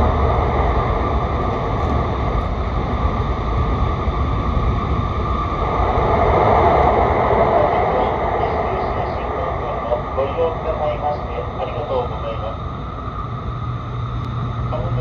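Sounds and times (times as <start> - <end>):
train interior rumble: 0.0 - 15.0.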